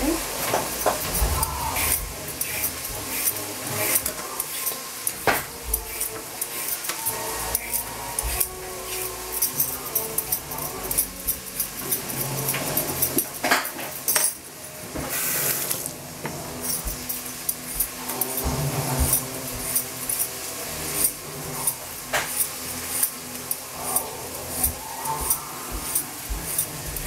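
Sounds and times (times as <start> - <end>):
peeler scraping potato: 0.0 - 27.0
metal clinking on steel sink: 6.8 - 14.4.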